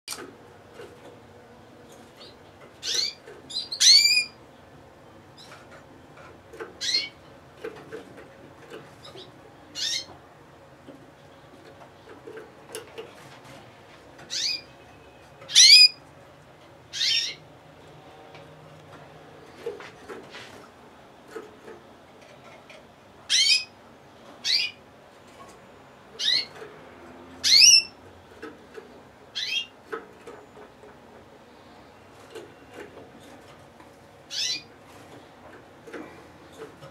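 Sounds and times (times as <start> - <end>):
canary chirping: 2.2 - 4.4, 5.4 - 7.3, 8.9 - 10.2, 14.2 - 16.0, 16.9 - 17.5, 23.3 - 23.8, 24.4 - 24.8, 26.2 - 26.6, 27.4 - 28.5, 29.3 - 30.8, 34.3 - 34.7.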